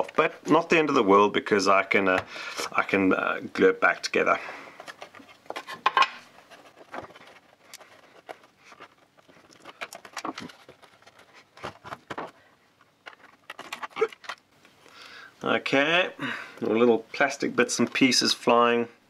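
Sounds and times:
plastic pieces breaking off: 13.0 - 14.5.

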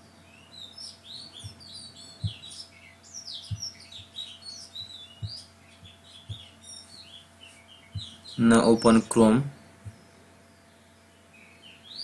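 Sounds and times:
small birds chirping: 0.0 - 12.0
soft low thumps: 1.0 - 8.4, 9.6 - 10.1.

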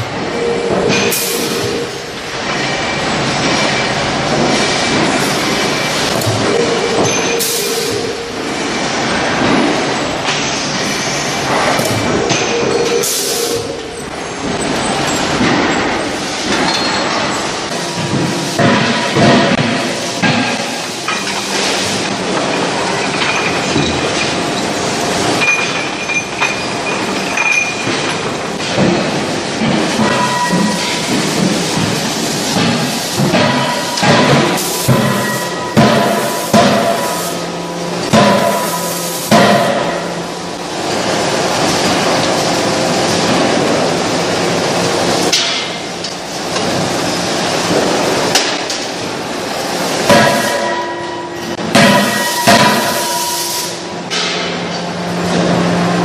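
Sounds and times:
rolling mill mechanical din: 0.0 - 56.0
chain conveyor clattering: 9.0 - 19.2, 21.0 - 39.0
loud metallic clang: 28.6 - 40.3, 50.1 - 54.7.

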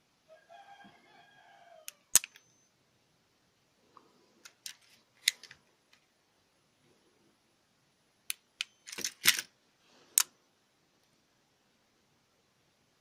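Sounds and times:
handling rattle: 8.8 - 9.5.

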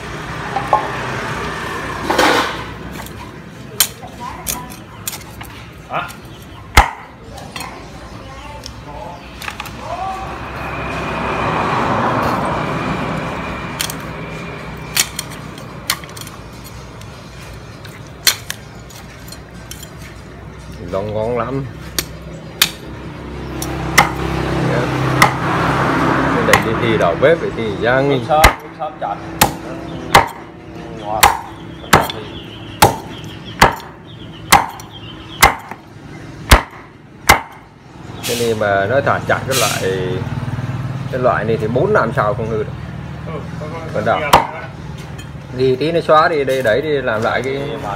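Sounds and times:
passing vehicle: 0.0 - 3.4, 8.9 - 17.7, 20.9 - 32.8, 37.6 - 47.9
cleaver chopping meat and bone: 2.3 - 5.5, 6.1 - 7.2, 14.8 - 17.1, 18.2 - 19.1, 21.8 - 27.1, 27.8 - 37.7, 44.3 - 44.6
cleaver chopping on wooden block: 6.7 - 7.1, 23.9 - 24.3, 25.1 - 25.5, 26.4 - 26.8, 28.4 - 28.8, 29.4 - 30.5, 31.2 - 35.8, 36.5 - 37.7.

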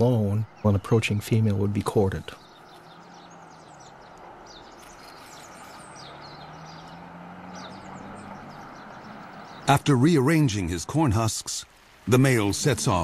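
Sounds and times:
small birds chirping: 0.0 - 13.0
steady background hiss: 9.9 - 13.0.

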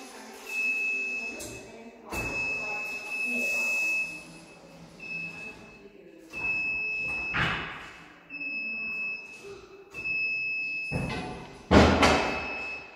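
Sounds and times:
warning beeper beeping: 0.4 - 7.4, 12.1 - 12.9.

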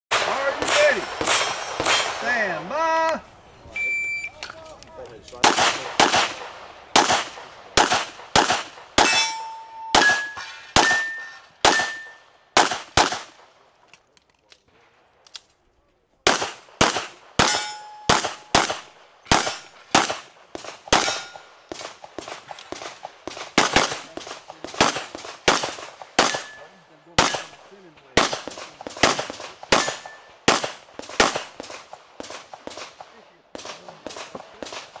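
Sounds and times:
handgun shots: 5.3 - 13.3, 16.3 - 20.2, 20.9 - 27.6, 28.2 - 32.9
steel targets ringing: 9.0 - 12.3, 17.4 - 18.6, 26.3 - 26.8.

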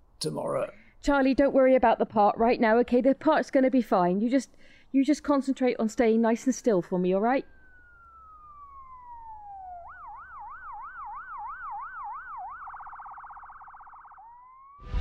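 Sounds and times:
ambulance siren wailing and yelping: 6.4 - 14.8.

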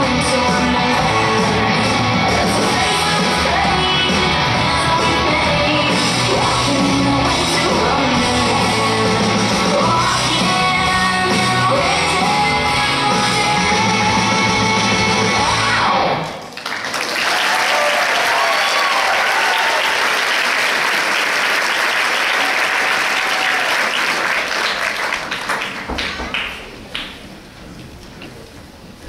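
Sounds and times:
audience applauding: 16.4 - 27.2.

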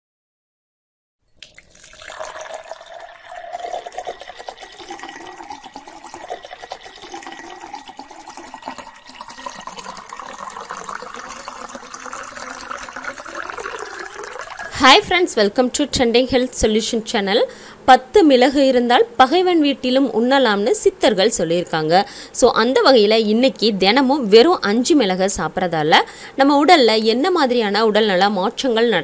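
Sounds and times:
water pouring into a glass: 1.3 - 15.0.

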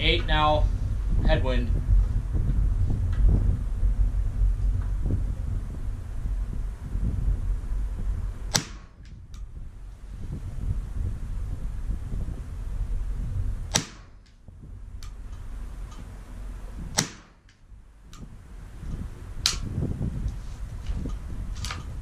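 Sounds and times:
low wind rumble on microphone: 0.0 - 22.0
rifle shots cracking: 8.5 - 9.1, 13.7 - 14.3, 17.0 - 17.5.

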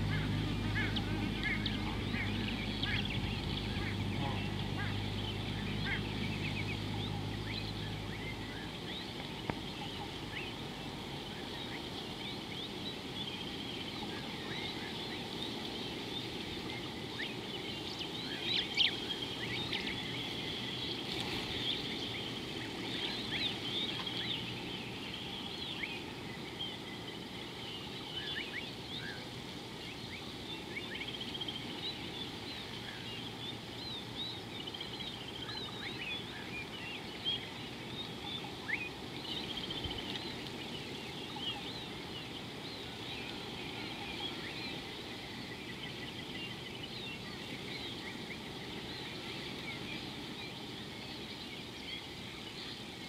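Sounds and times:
low background hum: 0.0 - 11.5
birds chirping: 0.0 - 53.0.

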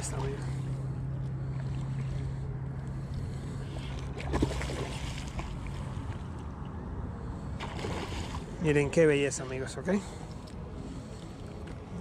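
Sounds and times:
water splashing: 0.0 - 0.8, 3.6 - 6.3, 7.6 - 9.8.

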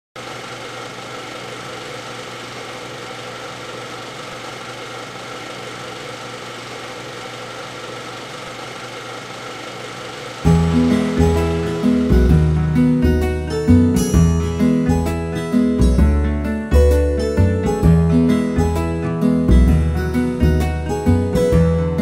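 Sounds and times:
film projector whirring: 0.2 - 13.9
music: 10.4 - 22.0.

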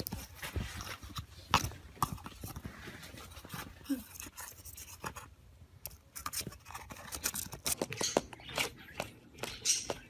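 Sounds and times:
bird scratching and tapping paper tube: 5.9 - 8.7.

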